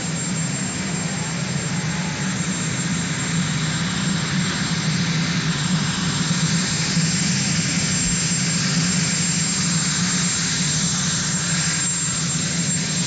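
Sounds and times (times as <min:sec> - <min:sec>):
helicopter turbine engines running: 0:00.0 - 0:13.0.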